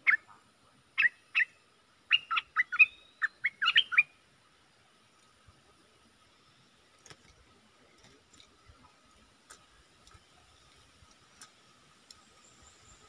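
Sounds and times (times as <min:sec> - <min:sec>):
faint sharp clicks in wire cage: 0:07.0 - 0:08.6, 0:09.4 - 0:12.3.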